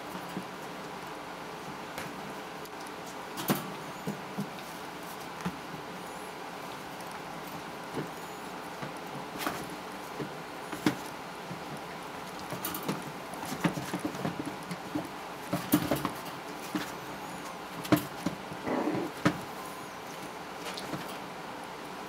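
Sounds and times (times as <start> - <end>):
puppies scuffling on bedding: 0.0 - 21.4
rustle of bedding: 0.0 - 22.0
puppy noises: 16.7 - 21.0.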